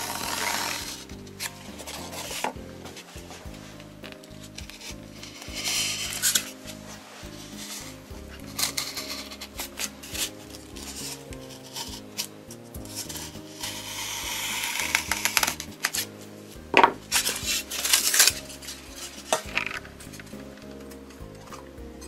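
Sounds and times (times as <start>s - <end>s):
knife blade scraping foam: 0.0s - 2.6s, 4.5s - 16.1s, 17.1s - 20.3s
foam snapping: 16.8s - 20.3s.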